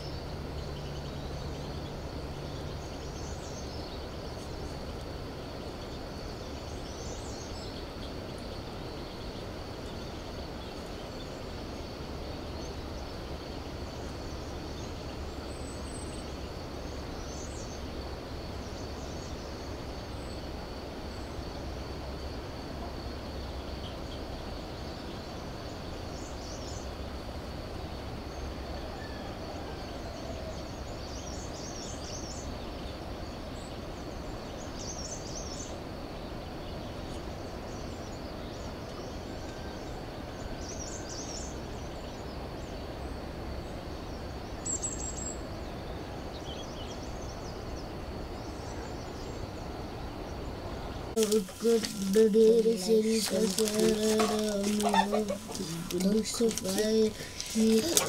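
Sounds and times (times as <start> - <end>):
low rumble and hiss: 0.0 - 58.0
bird chirps: 50.8 - 58.0.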